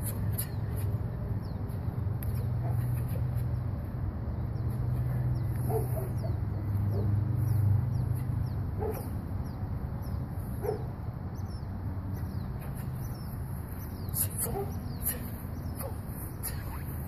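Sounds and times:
birds chirping: 0:00.0 - 0:17.0
small dog barking: 0:10.6 - 0:10.9.

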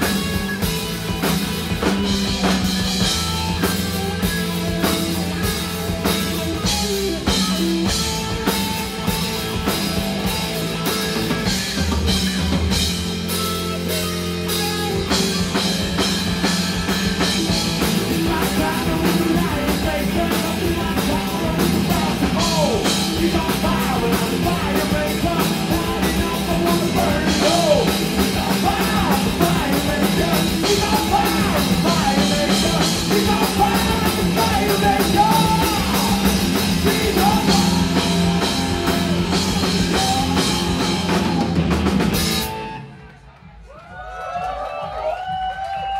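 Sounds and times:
rock band playing: 0:00.0 - 0:43.5
person singing: 0:16.9 - 0:41.8.

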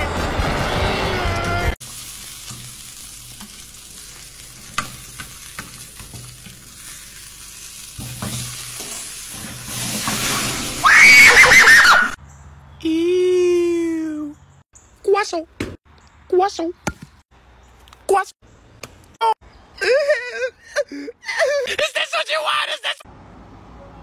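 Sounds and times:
meat sizzling in a frying pan: 0:01.8 - 0:10.9
high-pitched cry: 0:10.8 - 0:12.2.

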